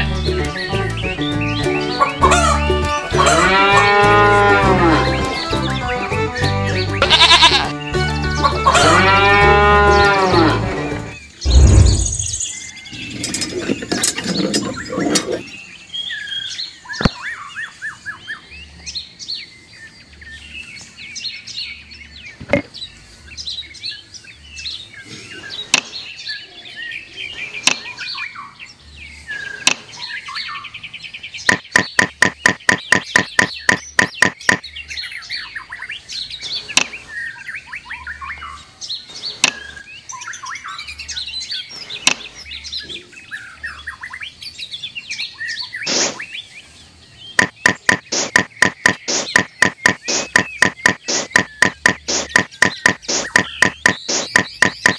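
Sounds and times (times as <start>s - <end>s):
birds chirping faintly: 0.0s - 54.9s
farm animal wavering call: 2.2s - 5.1s, 8.6s - 10.6s.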